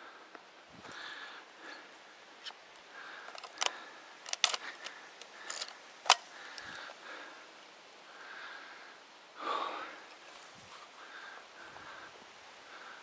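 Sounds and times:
soft rustling: 0:10.1 - 0:11.0.

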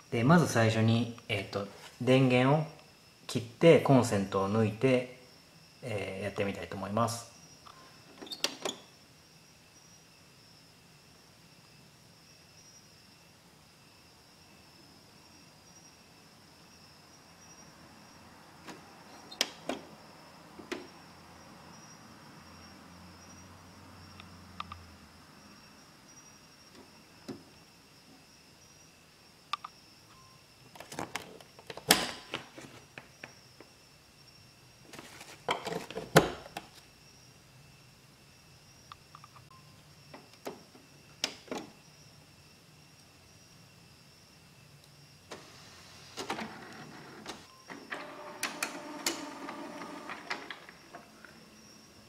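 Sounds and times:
printer hum: 0:45.3 - 0:51.9.

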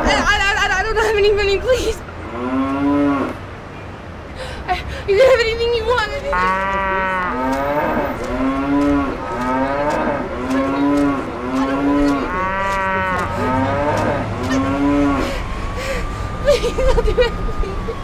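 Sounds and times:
cow-like mooing calls: 0:06.3 - 0:15.2.

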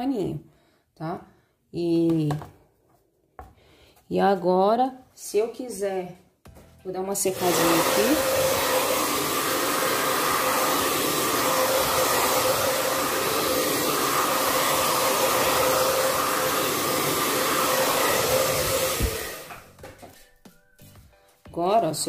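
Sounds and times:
hair dryer blowing: 0:07.3 - 0:19.8.

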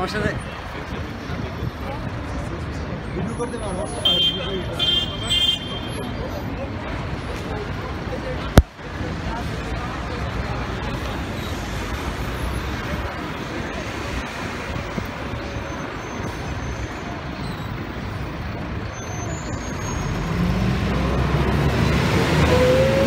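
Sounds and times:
bus engine accelerating: 0:06.1 - 0:23.0.

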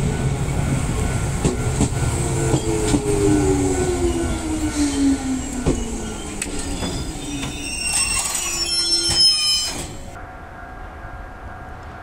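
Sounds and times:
train wheels clicking: 0:01.3 - 0:03.5, 0:04.3 - 0:10.0
train brakes squealing: 0:02.4 - 0:10.2.

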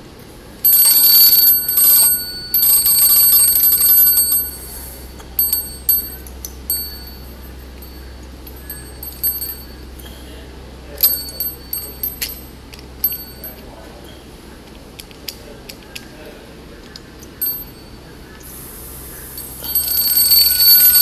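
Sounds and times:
toy bell ringing rapidly: 0:00.6 - 0:10.2, 0:11.0 - 0:13.7, 0:17.4 - 0:18.1, 0:19.3 - 0:21.0
single bell dings: 0:00.6 - 0:10.3, 0:11.0 - 0:14.2, 0:17.4 - 0:18.1, 0:19.3 - 0:21.0.

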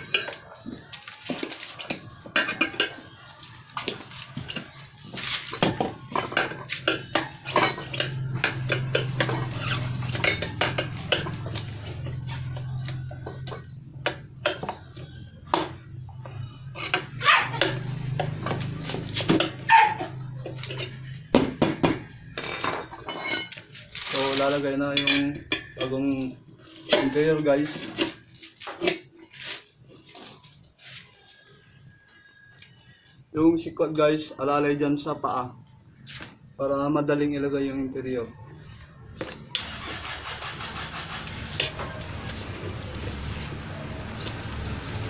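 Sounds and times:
tire levers clinking on metal rim: 0:00.0 - 0:15.8.

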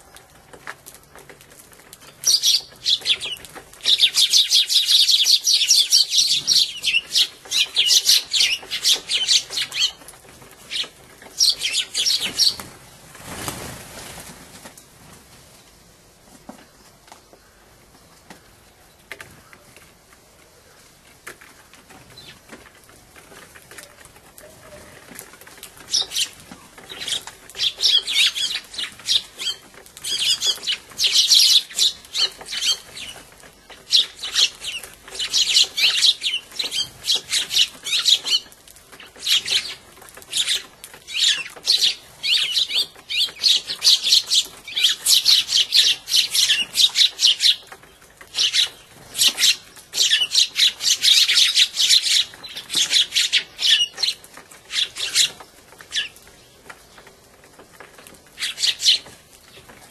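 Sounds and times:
sparrows chirping: 0:02.0 - 0:12.7, 0:23.6 - 0:57.1, 0:58.3 - 0:59.7.

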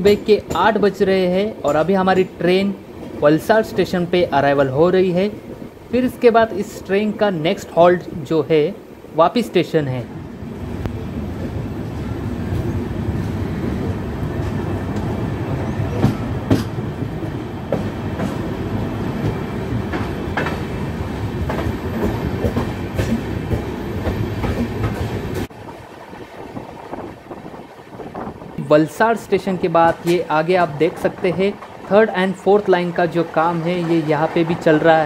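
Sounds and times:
wheels clacking over rail joints: 0:00.0 - 0:03.3, 0:15.8 - 0:25.5, 0:29.7 - 0:35.0
train rolling rumble: 0:00.0 - 0:35.0.

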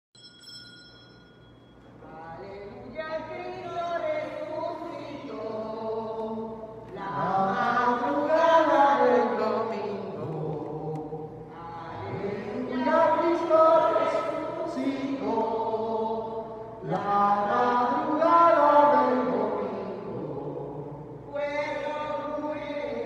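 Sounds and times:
faint ringing tone: 0:00.2 - 0:02.2
voices singing a hymn: 0:02.0 - 0:23.0.

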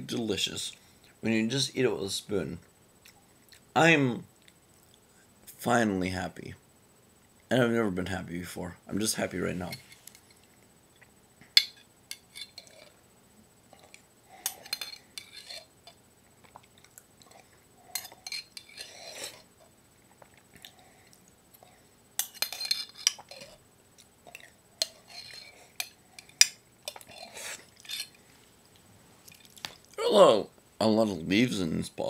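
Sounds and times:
spoon scraping in glass jar: 0:14.5 - 0:15.7, 0:18.0 - 0:19.4, 0:22.2 - 0:23.5, 0:24.8 - 0:25.9, 0:27.8 - 0:28.2.

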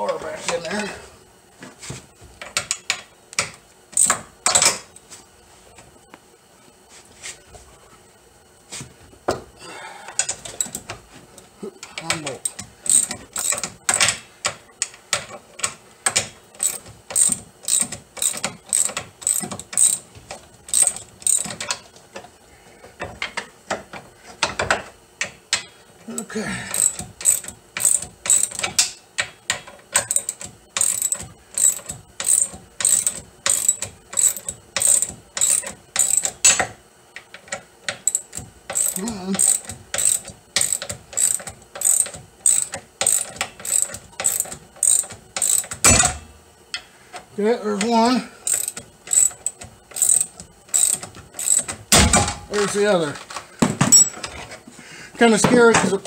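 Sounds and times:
hand ratchet clicking: 0:02.4 - 0:04.8, 0:11.8 - 0:21.9, 0:26.7 - 0:46.1, 0:47.8 - 0:51.8.

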